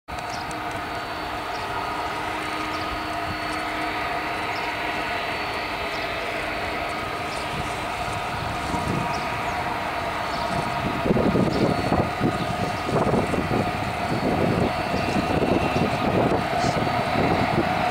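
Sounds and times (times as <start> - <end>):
jet engines at taxi power: 0.1 - 17.9.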